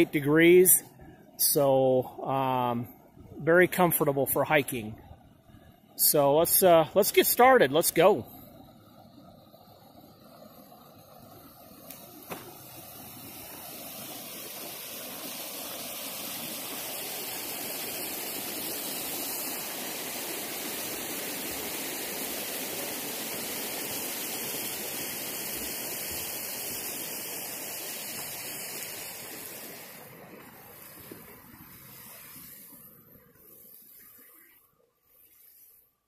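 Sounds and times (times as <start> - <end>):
creek water rushing: 10.2 - 35.7.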